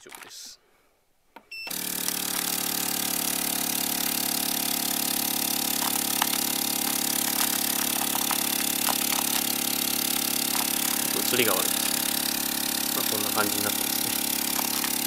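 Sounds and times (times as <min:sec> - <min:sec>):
vacuum sealer pump humming: 0:01.6 - 0:15.0.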